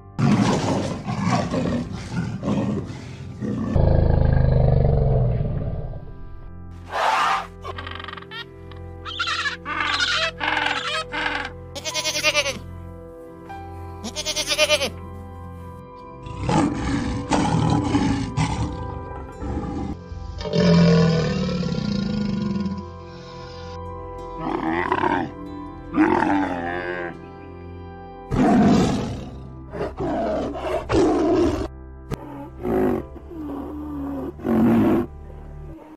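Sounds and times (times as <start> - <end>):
background music: 0.0 - 35.9
lion roaring: 0.2 - 6.0, 16.2 - 22.9, 28.3 - 35.1
animal bleating: 9.1 - 12.7, 14.0 - 15.0.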